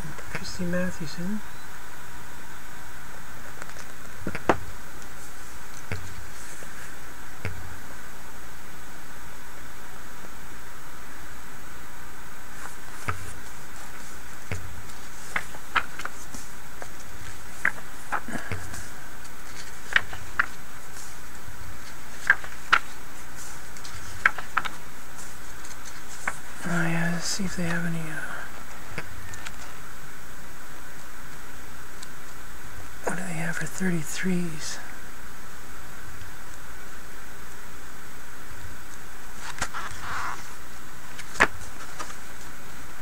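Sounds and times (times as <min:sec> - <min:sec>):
steady background hiss: 0:00.0 - 0:43.0
catalog pages turning: 0:12.5 - 0:27.9, 0:39.4 - 0:42.5
paper snaps: 0:14.4 - 0:21.1, 0:21.8 - 0:24.8, 0:39.4 - 0:40.2, 0:41.1 - 0:42.2.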